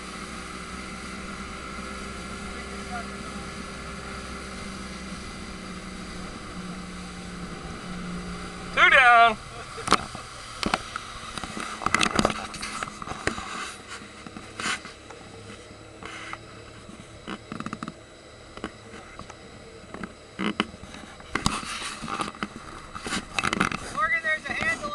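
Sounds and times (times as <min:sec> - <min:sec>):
handheld camera knocks and rustling: 0:10.6 - 0:13.5, 0:20.0 - 0:24.8.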